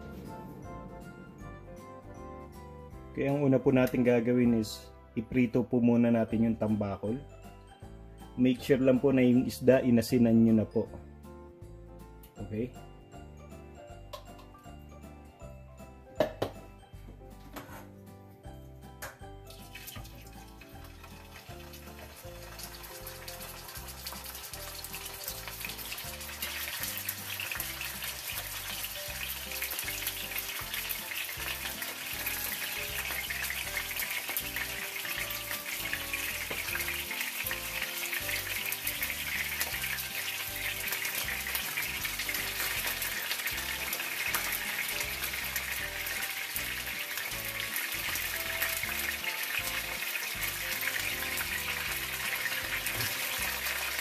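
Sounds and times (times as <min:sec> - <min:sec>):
fish frying in hot oil: 0:19.5 - 0:54.0.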